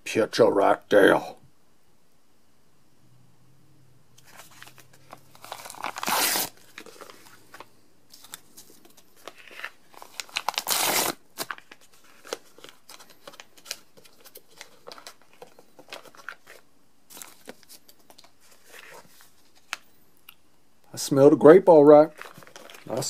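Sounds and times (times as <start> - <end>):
plastic pouch ripping: 4.2 - 19.0, 22.0 - 23.0
packet crinkling and rustling: 4.2 - 19.9, 22.0 - 23.0.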